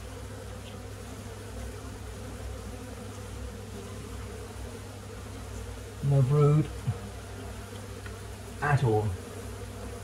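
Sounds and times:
bees buzzing: 0.0s - 10.0s.

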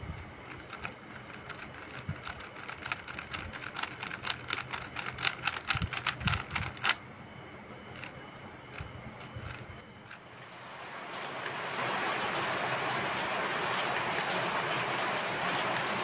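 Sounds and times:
speed cube layers clicking: 0.4s - 7.0s, 8.0s - 10.2s.

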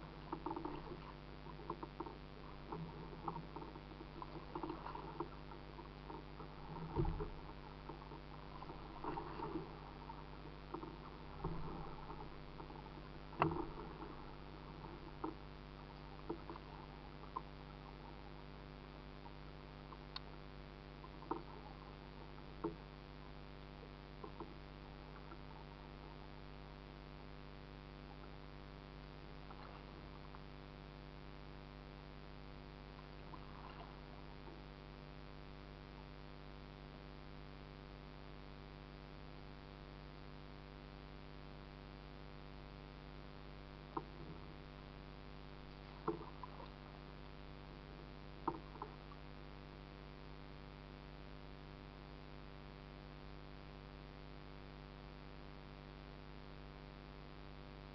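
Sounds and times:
low electrical hum: 0.0s - 57.9s.

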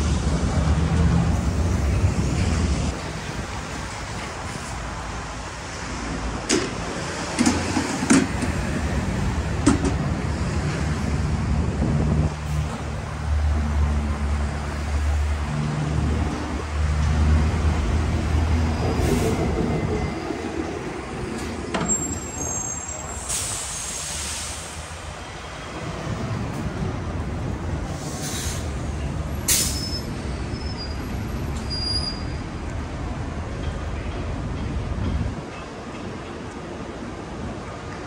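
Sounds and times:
high squeal: 21.8s - 24.4s, 29.5s - 32.5s
burst of hiss: 23.2s - 25.0s, 27.9s - 28.8s.

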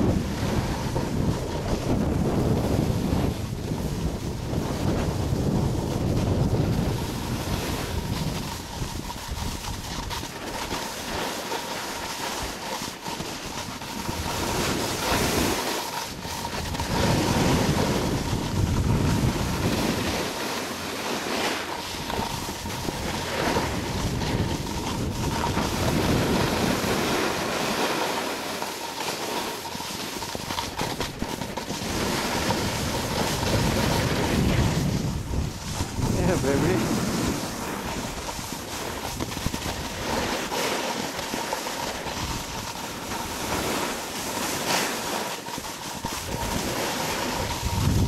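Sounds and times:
wind rushing over microphone: 0.0s - 10.4s, 13.5s - 20.8s, 21.8s - 27.8s, 29.7s - 41.2s, 45.7s - 48.0s.

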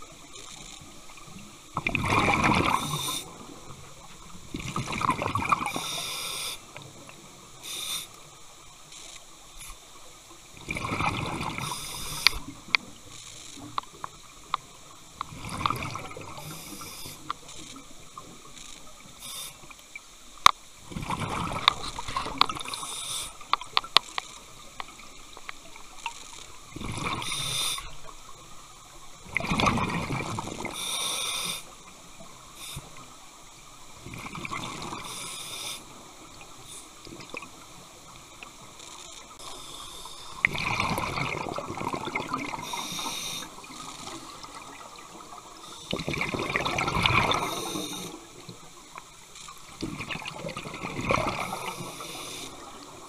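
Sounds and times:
exhaled bubbles rushing: 1.8s - 3.6s, 4.5s - 5.8s, 10.6s - 11.7s, 20.9s - 22.8s, 29.2s - 30.7s, 40.4s - 42.8s, 45.9s - 47.7s, 49.8s - 51.7s.

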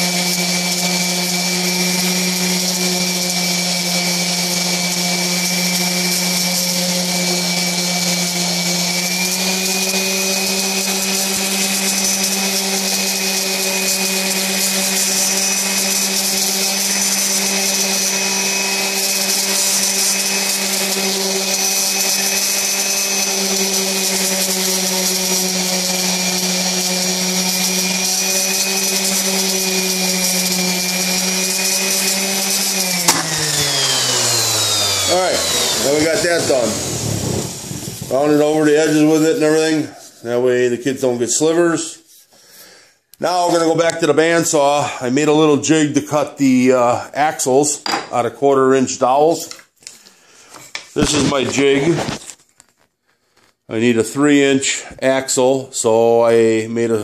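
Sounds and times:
sander motor winding down: 0.0s - 39.9s
electric palm sander running: 0.0s - 41.0s.

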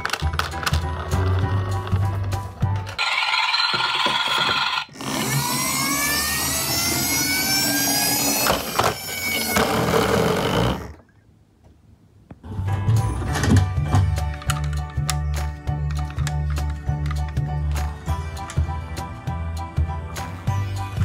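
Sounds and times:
toy truck engine revving effect: 3.0s - 11.0s.

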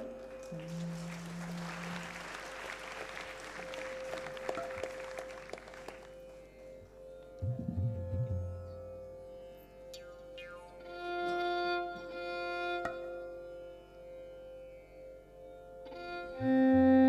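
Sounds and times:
audience clapping: 0.0s - 6.4s
low deep musical notes: 0.0s - 13.6s
steady musical drone: 0.0s - 16.9s.

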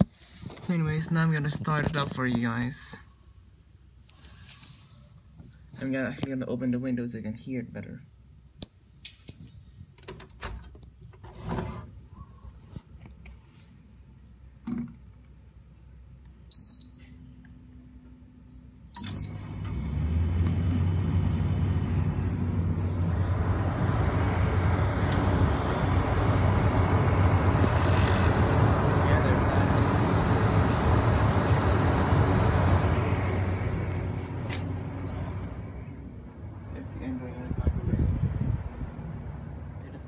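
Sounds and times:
fan air noise: 0.0s - 40.0s
compressor hum: 15.4s - 40.0s.

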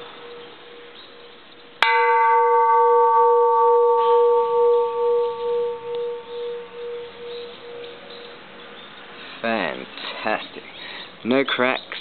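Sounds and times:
temple bell ringing: 0.0s - 1.2s, 1.8s - 8.4s.

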